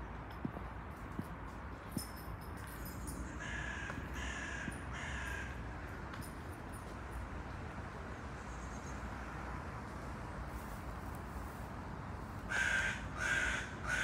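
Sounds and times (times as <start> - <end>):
crow cawing: 3.3 - 5.6, 12.5 - 14.0.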